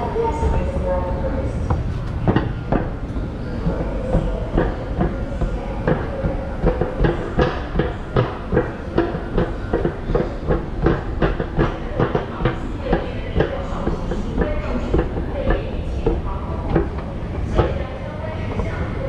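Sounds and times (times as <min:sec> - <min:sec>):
metro train hum and rumble: 0:00.0 - 0:19.0
train wheels clattering over track: 0:00.0 - 0:19.0.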